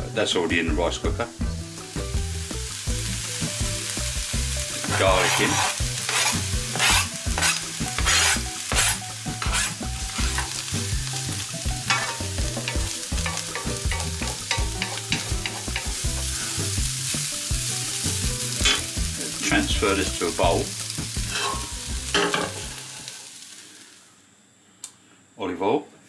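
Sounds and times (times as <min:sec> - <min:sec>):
onions sizzling in a frying pan: 0:00.2 - 0:24.2
utensil scraping a pan: 0:04.8 - 0:10.6, 0:11.9 - 0:16.3, 0:21.2 - 0:22.9.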